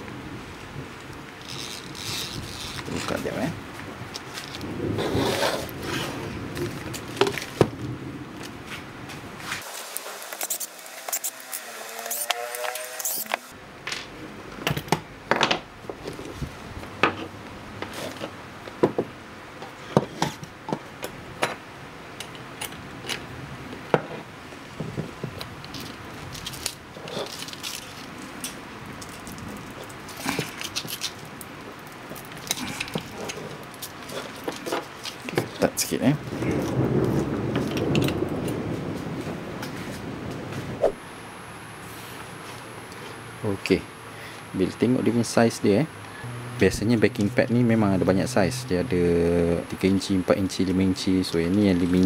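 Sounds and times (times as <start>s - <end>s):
plastic wrapping rustling: 1.4s - 7.6s, 24.8s - 38.4s.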